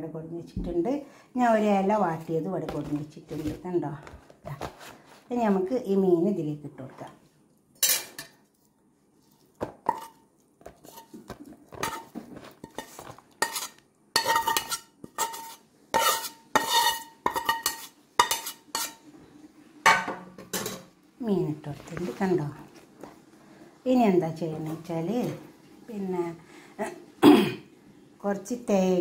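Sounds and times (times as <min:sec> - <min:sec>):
metal utensil scraping a pan: 0:07.8 - 0:08.4, 0:09.8 - 0:19.1.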